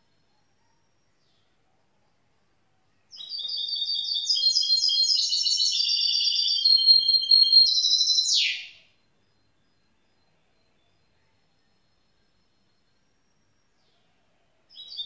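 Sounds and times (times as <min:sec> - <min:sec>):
bird twittering song: 0:03.1 - 0:15.0.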